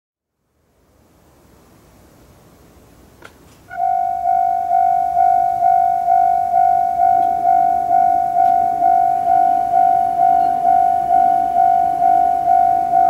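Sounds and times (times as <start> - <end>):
level crossing bell ringing: 3.7 - 13.0.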